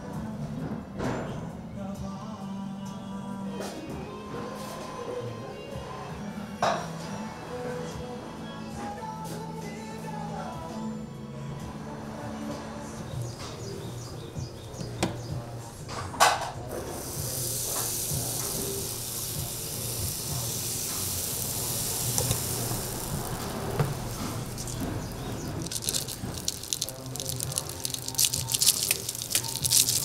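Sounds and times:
batter sizzling: 16.7 - 30.0
chocolate chips pattering: 17.1 - 30.0.

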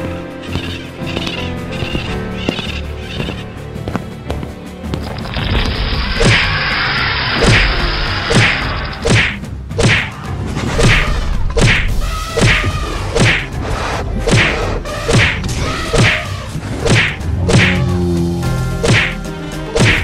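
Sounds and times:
cartoon whacking hits: 8.3 - 10.1, 10.8 - 13.5, 14.3 - 16.2, 16.8 - 17.9, 18.8 - 19.2, 19.8 - 20.0.

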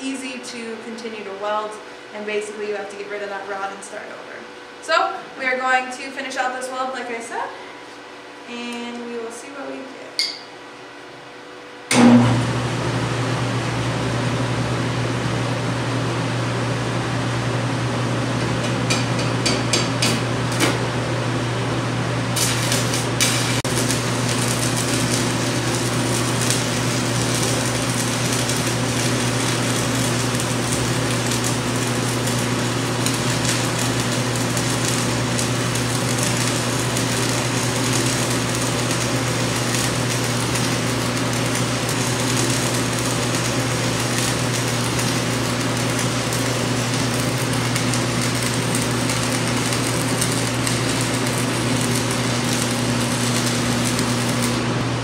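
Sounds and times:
welding arc crackling and hissing: 22.2 - 55.0.

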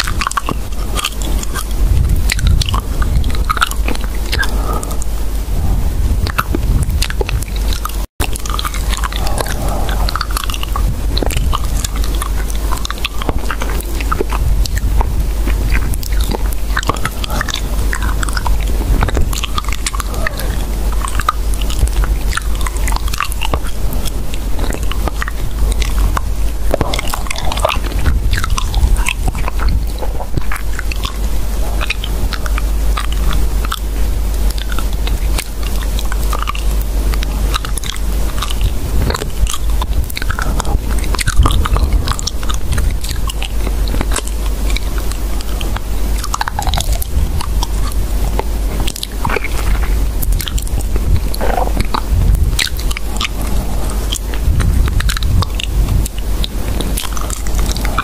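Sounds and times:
crunching and clicking: 0.0 - 58.0
steady low rumble: 0.0 - 58.0.

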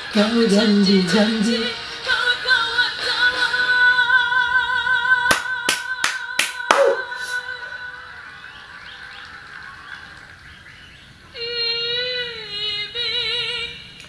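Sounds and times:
person clapping hands: 5.3 - 7.4.

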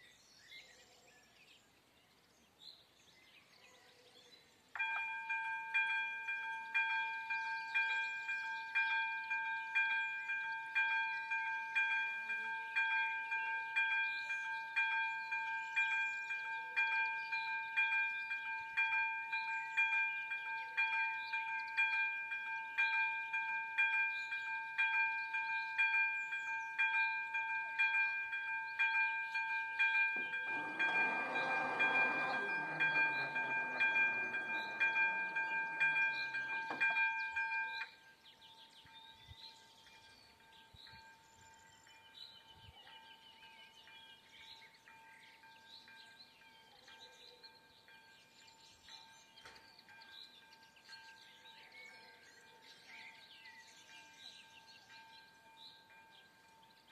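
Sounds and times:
level-crossing warning bell: 4.8 - 56.9
passing train: 21.8 - 38.2.

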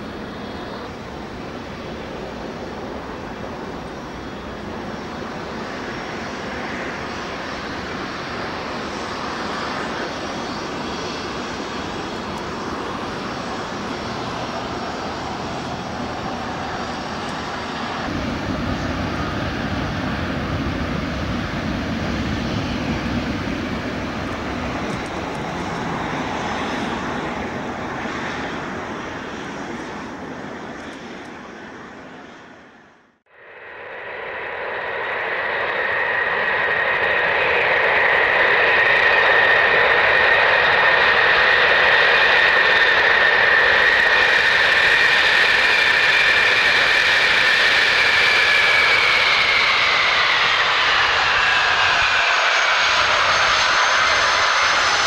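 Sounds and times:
aircraft engines rushing: 0.0 - 55.0.

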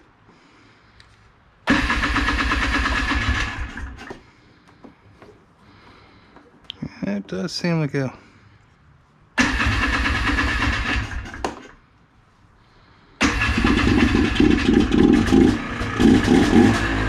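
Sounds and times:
two-stroke engine running: 1.7 - 4.1, 9.4 - 11.5, 13.2 - 17.0.

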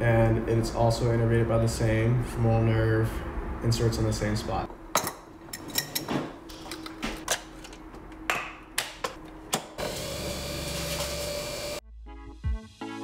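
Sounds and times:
coffee machine whirring hum: 9.2 - 11.8.

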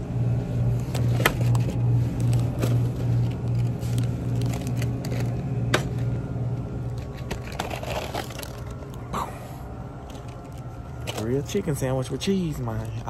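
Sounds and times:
steady low hum: 0.0 - 13.0
cardboard box crinkling: 7.2 - 9.0.

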